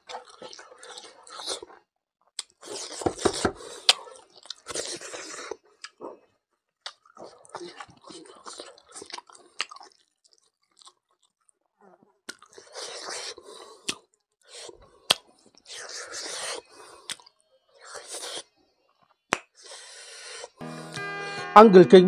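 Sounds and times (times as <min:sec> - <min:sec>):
chewing: 0:00.0 - 0:01.8, 0:02.4 - 0:19.9
lip smacks: 0:12.3 - 0:17.3
man sucking and licking fingers: 0:12.3 - 0:18.5.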